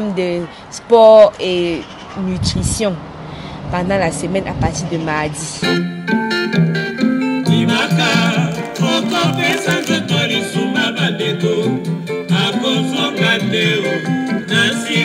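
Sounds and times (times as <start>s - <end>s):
plucked guitar: 5.6s - 15.0s
person singing: 7.4s - 15.0s.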